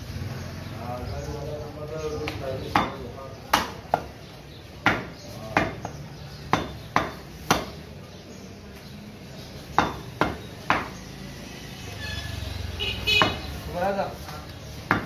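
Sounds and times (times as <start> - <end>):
cleaver chopping meat on wood: 2.2 - 7.9, 9.7 - 11.1, 13.2 - 13.6, 14.8 - 15.0.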